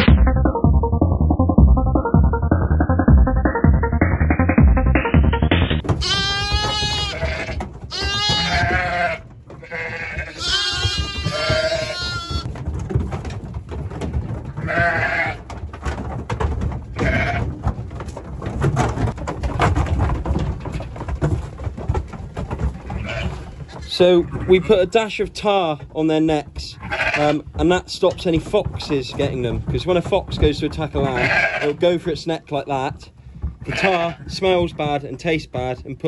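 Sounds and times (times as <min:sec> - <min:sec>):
knocks and rattles in metal trailer: 0:03.9 - 0:36.0
lambs and ewes bleating: 0:05.9 - 0:12.5, 0:14.6 - 0:15.4, 0:16.9 - 0:17.5, 0:23.0 - 0:24.9, 0:26.8 - 0:27.5, 0:31.0 - 0:31.9, 0:33.6 - 0:34.4.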